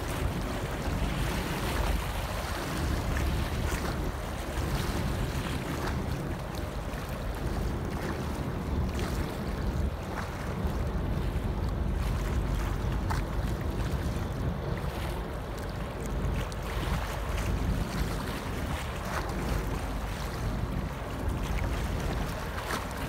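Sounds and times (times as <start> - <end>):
waves lapping and splashing: 0.0 - 23.0
wind buffeting microphone: 0.0 - 23.0.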